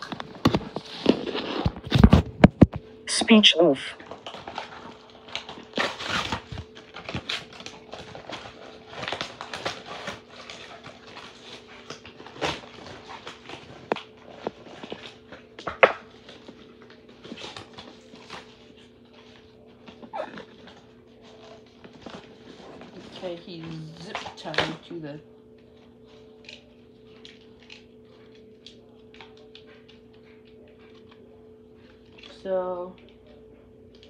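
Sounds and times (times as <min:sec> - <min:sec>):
packaging rustling and scraping: 0:00.0 - 0:02.9, 0:04.0 - 0:24.9
faint steady hum: 0:00.0 - 0:34.0.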